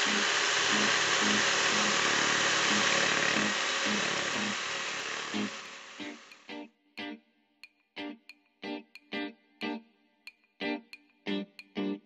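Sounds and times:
electric jigsaw motor buzz: 0.0s - 6.5s.

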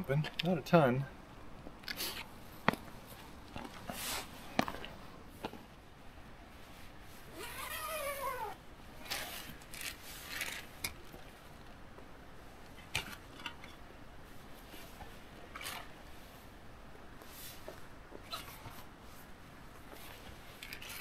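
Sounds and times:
rustling fabric: 2.0s - 5.0s, 17.2s - 21.0s.

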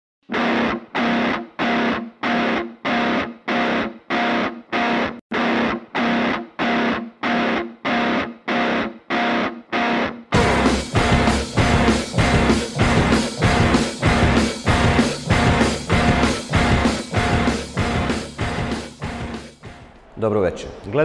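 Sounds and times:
distorted electric guitar chord stabs: 0.3s - 19.8s.

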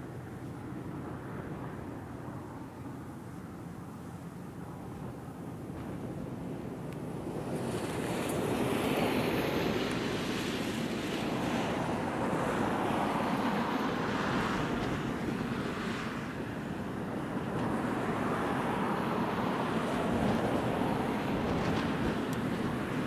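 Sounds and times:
wind buffeting microphone: 0.0s - 23.0s
jet engines roaring: 4.7s - 23.0s.

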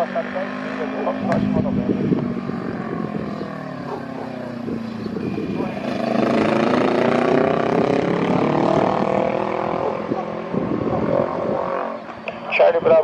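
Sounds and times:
distant jet engine drone: 0.0s - 13.0s.

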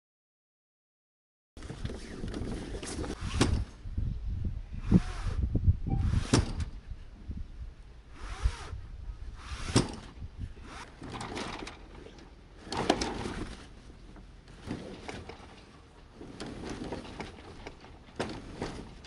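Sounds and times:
sailcloth rustling and flapping: 1.6s - 3.7s, 10.0s - 19.0s
rigging clicks and knocks: 9.6s - 19.0s.

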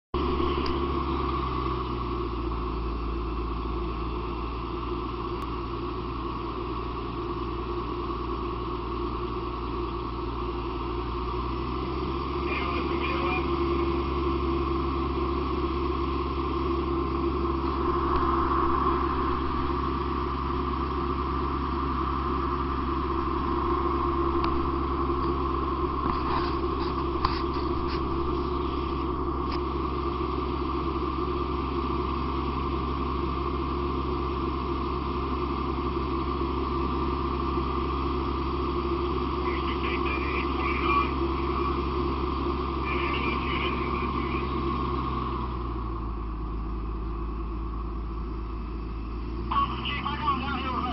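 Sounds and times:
fire engine pump droning: 0.2s - 50.9s.

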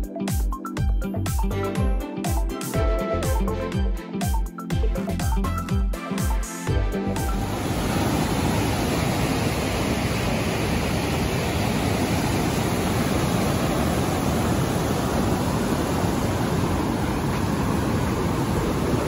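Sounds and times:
river rapids rushing: 7.3s - 19.0s.

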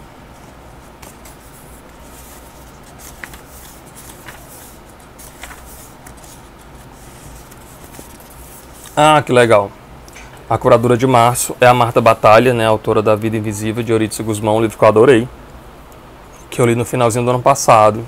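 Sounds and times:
paper pages rustling: 0.4s - 9.0s
page flicks: 3.0s - 6.4s.

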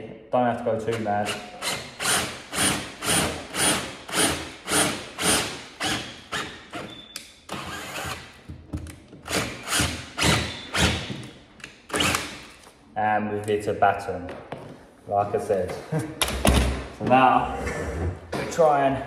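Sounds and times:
drill boring into wood: 7.6s - 8.3s.

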